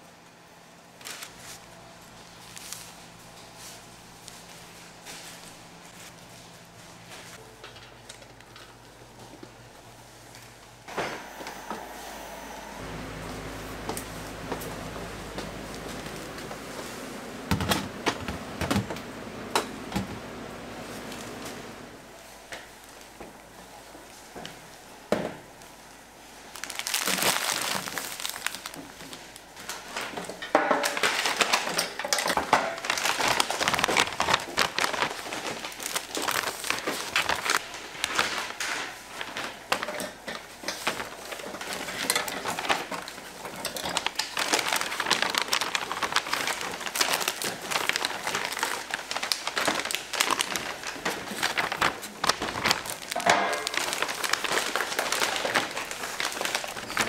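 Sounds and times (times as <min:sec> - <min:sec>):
plastic packaging crinkling: 0:01.0 - 0:09.0, 0:26.4 - 0:57.0.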